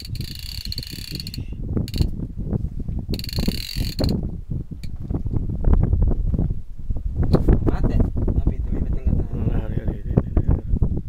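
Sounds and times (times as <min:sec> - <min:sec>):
fishing reel whirring: 0:00.0 - 0:02.2, 0:03.1 - 0:04.2.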